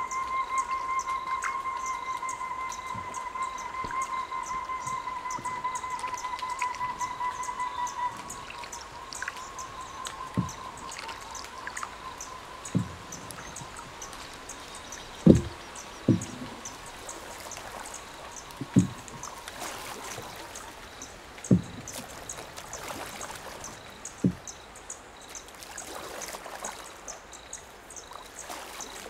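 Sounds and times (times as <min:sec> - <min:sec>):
insect high hum: 0:00.0 - 0:29.0
soft low thumps: 0:12.7 - 0:13.9, 0:14.7 - 0:17.1, 0:18.5 - 0:19.3, 0:21.5 - 0:22.0.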